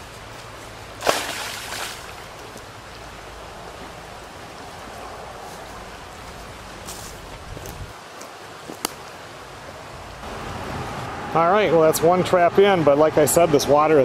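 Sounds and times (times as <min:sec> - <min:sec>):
river current rushing: 0:00.7 - 0:13.4
trap splashing into water: 0:01.0 - 0:02.2.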